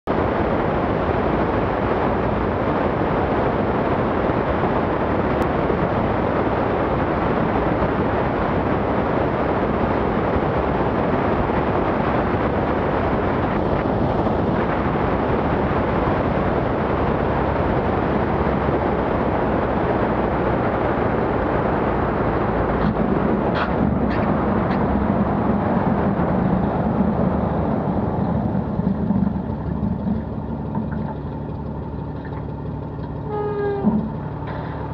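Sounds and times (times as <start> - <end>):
airplane engine and propeller: 0.0 - 34.9
wind rushing on microphone: 0.1 - 34.9
wheels knocking on runway: 11.5 - 34.9.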